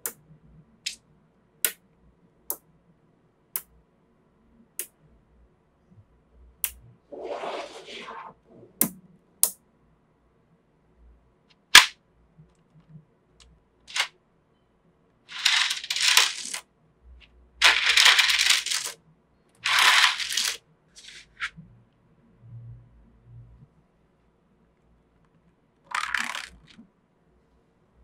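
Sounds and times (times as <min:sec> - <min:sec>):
magnetic balls clicking: 0:12.6 - 0:14.1, 0:15.3 - 0:16.6, 0:17.6 - 0:19.0, 0:19.6 - 0:21.5
magnetic balls clattering: 0:13.9 - 0:14.1, 0:15.3 - 0:16.6, 0:17.6 - 0:19.0, 0:19.6 - 0:21.5, 0:25.9 - 0:26.8.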